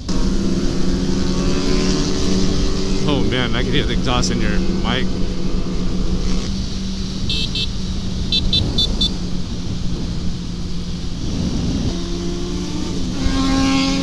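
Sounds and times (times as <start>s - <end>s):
motorcycle engine cruising: 0.0s - 14.0s
wind rush on microphone: 0.0s - 14.0s
short high-pitched beeps: 7.3s - 7.7s, 8.3s - 9.2s.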